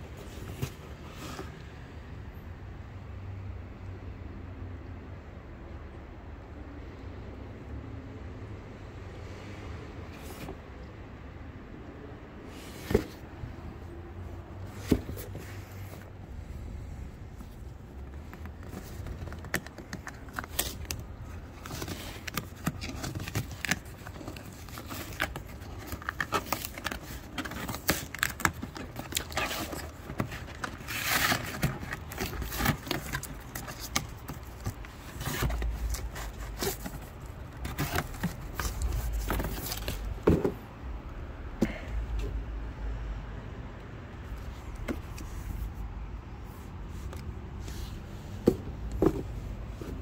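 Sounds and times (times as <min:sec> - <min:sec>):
cardboard flaps scraping and crinkling: 0:00.0 - 0:01.6, 0:12.5 - 0:13.6, 0:14.5 - 0:16.6, 0:17.2 - 0:40.7
cardboard and tape tearing: 0:18.3 - 0:40.1
box clicks and knocks: 0:18.3 - 0:40.7, 0:48.4 - 0:49.3.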